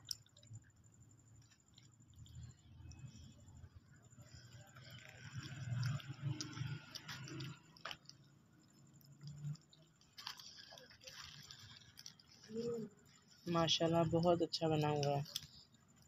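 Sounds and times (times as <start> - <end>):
person chewing food: 1.3 - 13.3.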